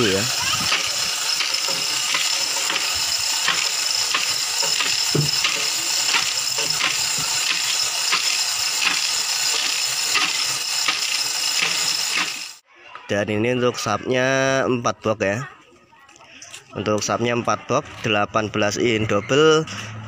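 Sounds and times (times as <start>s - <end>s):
hoist chain rattling: 0.0s - 12.6s
ratchet clicks: 0.0s - 12.6s.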